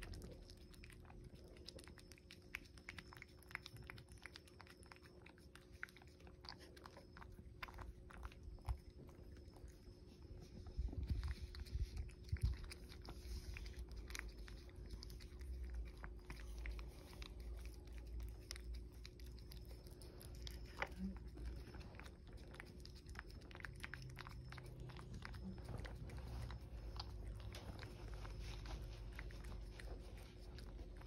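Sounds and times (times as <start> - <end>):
cat licking wet tongue clicks: 0.0 - 9.8.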